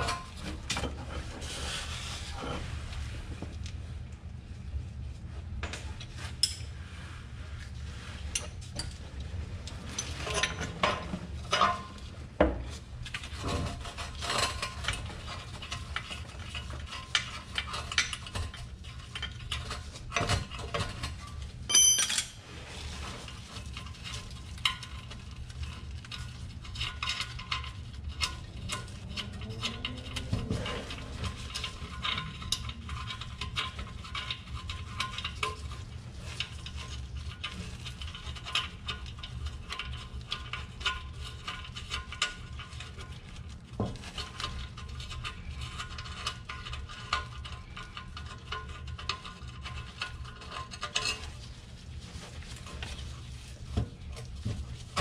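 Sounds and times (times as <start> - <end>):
wrenches clinking on metal: 21.7 - 22.4.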